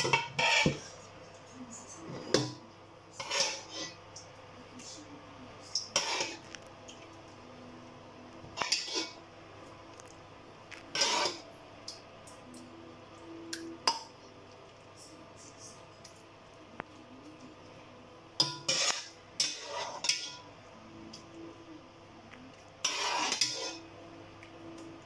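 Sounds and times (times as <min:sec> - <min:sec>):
spoon scraping metal pot: 0:00.0 - 0:01.0, 0:02.0 - 0:02.6, 0:03.2 - 0:04.0, 0:05.7 - 0:06.6, 0:08.6 - 0:09.2, 0:10.7 - 0:11.5, 0:18.4 - 0:20.5, 0:22.8 - 0:23.9.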